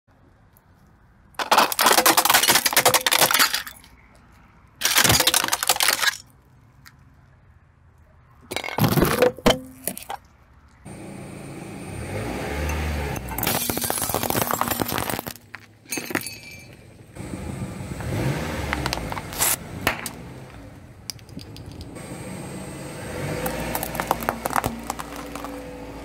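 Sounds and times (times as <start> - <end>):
plastic toy crunching under tyre: 1.3 - 4.0, 4.8 - 7.0, 13.4 - 15.8, 18.7 - 20.2, 23.4 - 26.0
car low rumble: 10.6 - 26.0.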